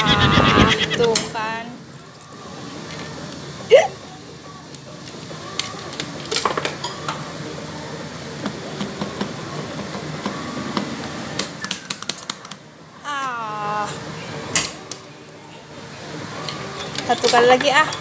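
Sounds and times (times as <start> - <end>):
steady background hum: 0.0 - 18.0.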